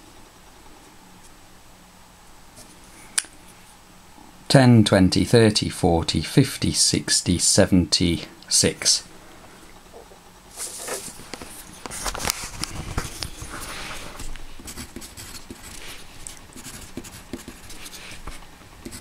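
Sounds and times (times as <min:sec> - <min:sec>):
paper being handled: 0:10.5 - 0:14.3
pencil scratching on paper: 0:14.6 - 0:19.0.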